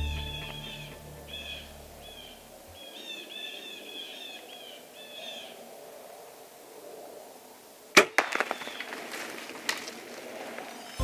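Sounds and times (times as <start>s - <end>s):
deer crackling and rustling away: 8.0s - 11.0s.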